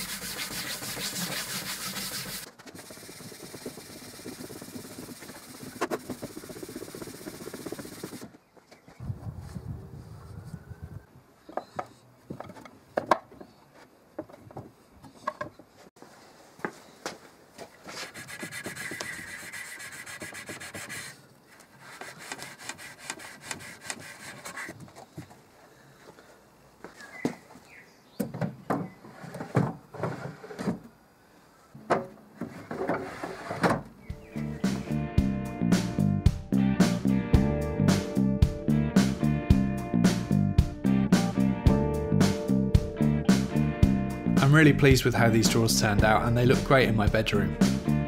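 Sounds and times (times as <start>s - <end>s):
drawers sliding scrapes: 29.0s - 30.8s, 32.4s - 33.8s.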